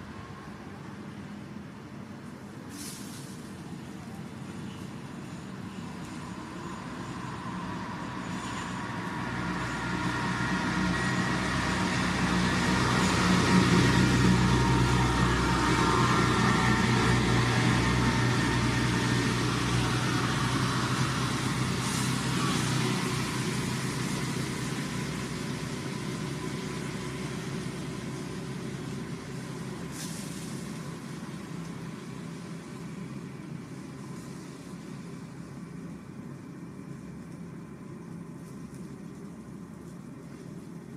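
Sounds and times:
passing vehicle engine: 5.5s - 35.6s.

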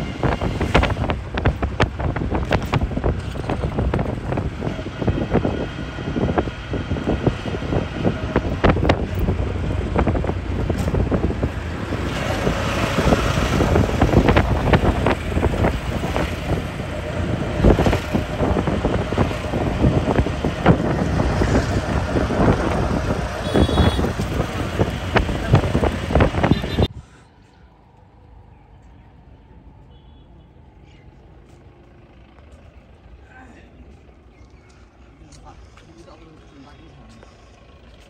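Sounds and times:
wind buffeting microphone: 0.0s - 27.0s.

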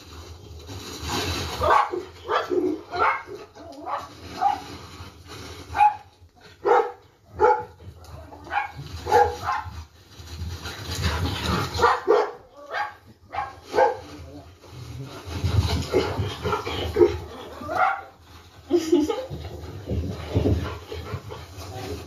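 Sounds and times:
dog barking: 1.6s - 4.6s, 5.8s - 9.7s, 11.8s - 14.1s, 17.0s - 18.1s.

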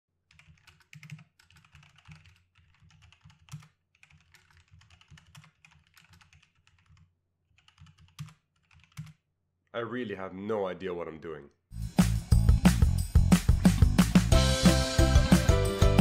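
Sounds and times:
typing on computer keyboard: 0.3s - 9.2s.

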